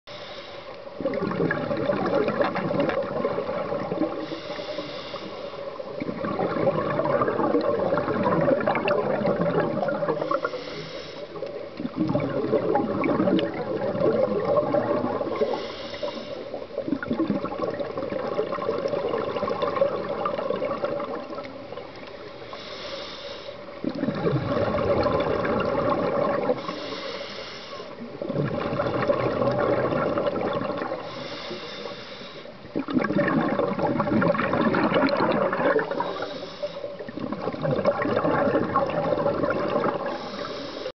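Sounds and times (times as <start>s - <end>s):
regulator inhale hiss: 0.1s - 1.0s, 4.2s - 5.8s, 10.1s - 11.6s, 15.4s - 16.7s, 22.2s - 23.8s, 26.6s - 28.0s, 31.0s - 32.6s, 35.8s - 37.1s, 40.0s - 40.9s
exhaled air bubbling: 0.1s - 40.9s.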